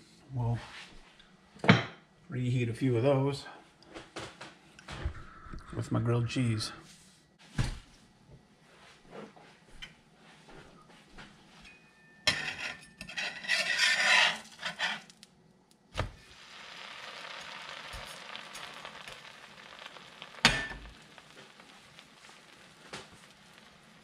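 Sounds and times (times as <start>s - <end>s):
spatula scraping griddle: 12.3s - 15.3s, 16.0s - 21.3s
sandwich sizzling: 13.2s - 24.0s.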